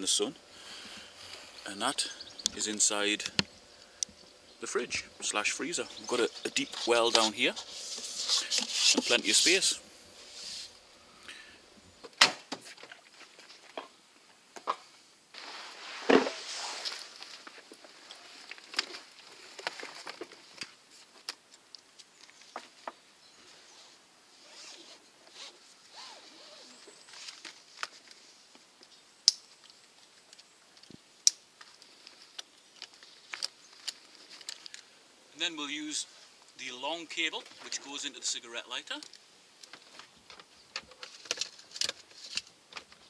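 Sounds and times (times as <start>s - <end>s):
straps and zips rustling: 23.7s - 28.3s.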